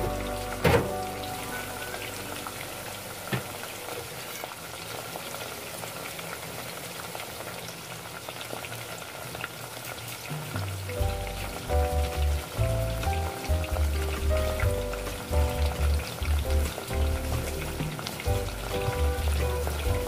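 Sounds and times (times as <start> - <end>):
deep-frying sizzle: 0.0 - 20.0.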